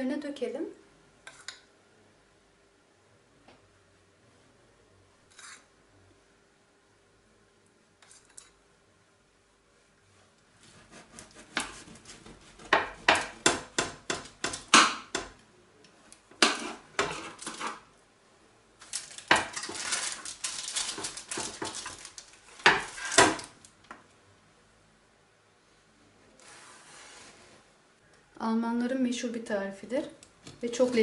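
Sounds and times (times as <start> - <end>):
metal spatula scraping baking tray: 5.3 - 5.7, 16.4 - 17.8.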